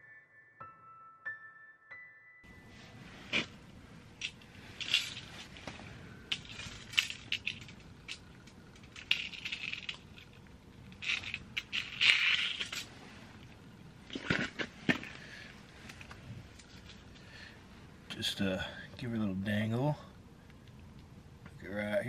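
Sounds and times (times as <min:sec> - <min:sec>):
metal clicks clinks and scrapes: 0:04.2 - 0:12.9.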